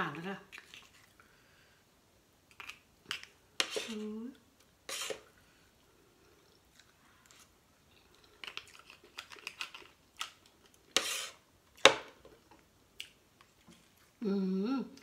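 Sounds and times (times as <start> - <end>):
fork scraping crab shell: 4.9 - 5.2, 10.9 - 11.4.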